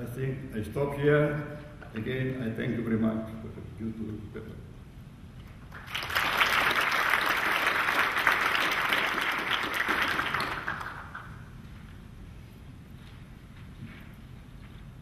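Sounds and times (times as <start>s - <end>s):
audience applauding: 5.7s - 11.4s.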